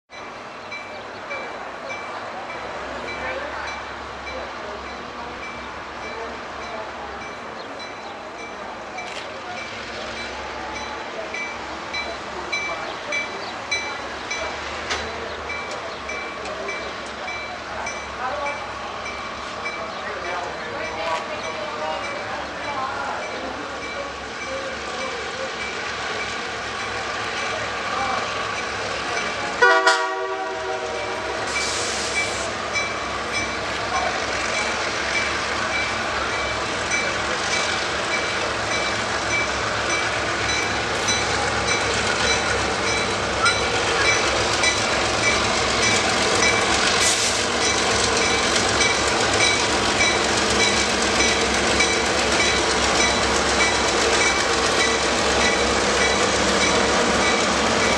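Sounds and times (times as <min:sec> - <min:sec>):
diesel locomotives passing: 0:00.1 - 0:57.9
train horn blast: 0:29.6 - 0:31.5.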